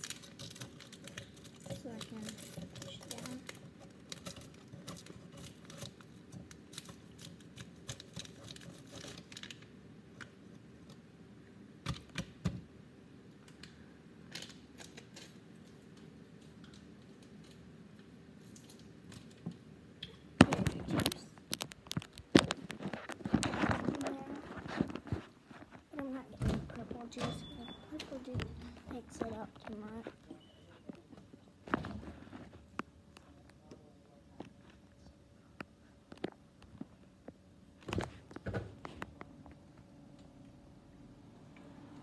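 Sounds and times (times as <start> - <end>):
plastic tubes crinkling: 0.0 - 11.0, 14.3 - 27.2.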